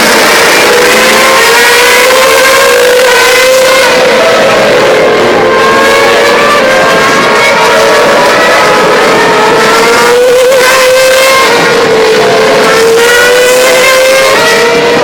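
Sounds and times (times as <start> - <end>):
racing car engines at high revs: 0.0 - 15.0.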